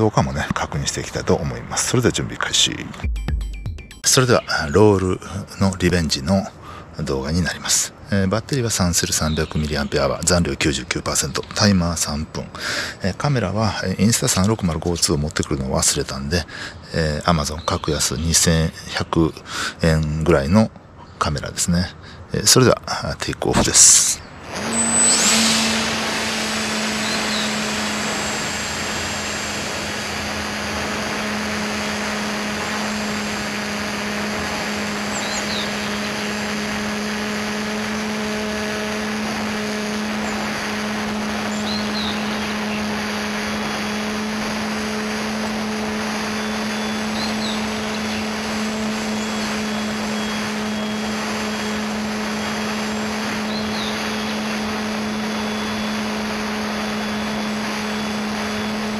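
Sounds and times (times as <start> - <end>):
model airplane electric motor: 23.8 - 58.9
rush of air: 24.4 - 32.5.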